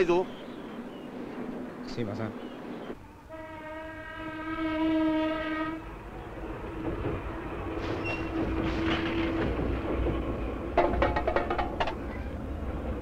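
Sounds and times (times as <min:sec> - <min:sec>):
low rumble of train running: 0:00.0 - 0:13.0
train horn: 0:03.1 - 0:05.9.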